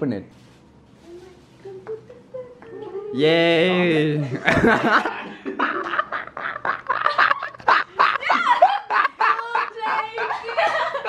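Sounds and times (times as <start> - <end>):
girl giggling: 4.3 - 11.0.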